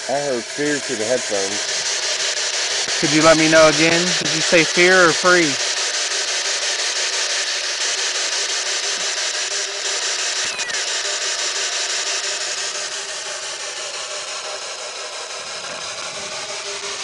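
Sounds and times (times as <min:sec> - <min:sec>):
radio scanner static with clicks: 0:01.0 - 0:05.7.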